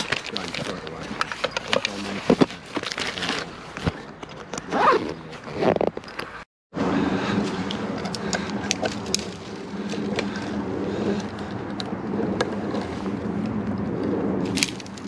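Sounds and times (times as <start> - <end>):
branches brushing and crackling: 0.0 - 6.4, 7.2 - 15.0
steady low drone: 6.8 - 15.0
twigs snapping: 7.6 - 10.5, 14.5 - 15.0.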